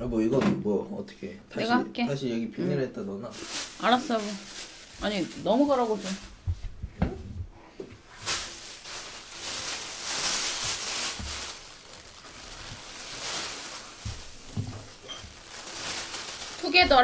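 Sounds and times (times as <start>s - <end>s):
plastic bag rustling: 3.3s - 6.5s, 8.0s - 17.0s
soft low thumps: 6.4s - 7.6s.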